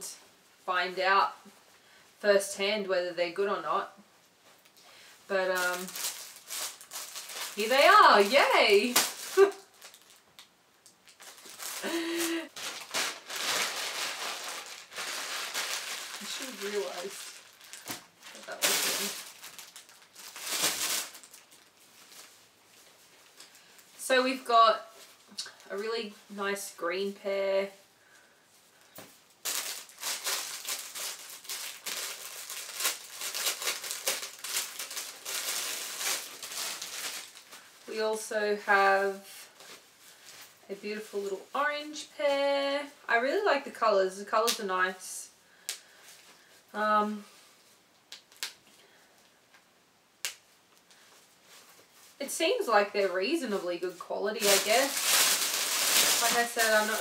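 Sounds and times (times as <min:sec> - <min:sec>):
plastic bag crinkling: 0:04.7 - 0:24.2, 0:29.4 - 0:38.1, 0:51.0 - 0:57.0.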